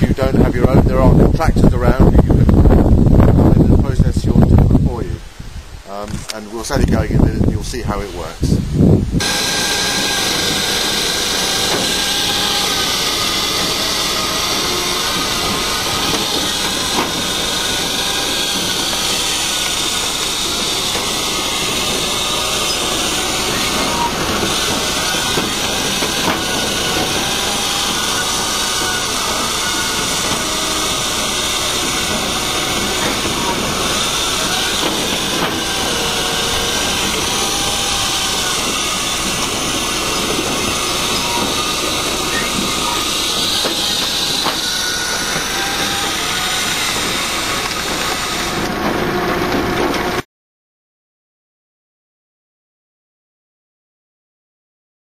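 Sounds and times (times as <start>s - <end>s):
firewood processor running: 9.2s - 50.2s.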